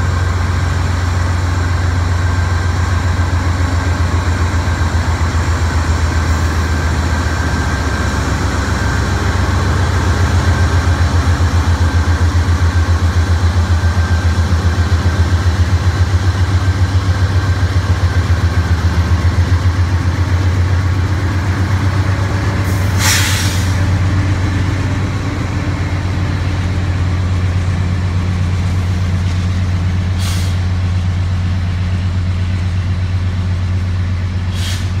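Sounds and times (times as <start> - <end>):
diesel locomotive engine drone: 0.0 - 35.0
air hiss: 22.7 - 23.8, 30.2 - 30.7, 34.5 - 35.0.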